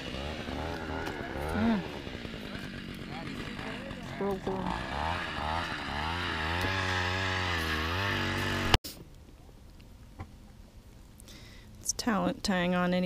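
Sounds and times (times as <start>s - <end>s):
small gasoline engine revving: 0.0s - 8.8s.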